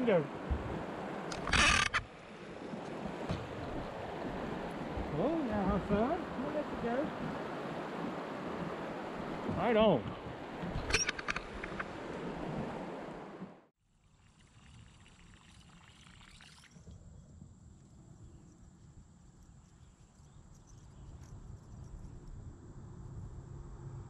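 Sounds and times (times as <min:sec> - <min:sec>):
river water rushing: 0:00.0 - 0:13.5.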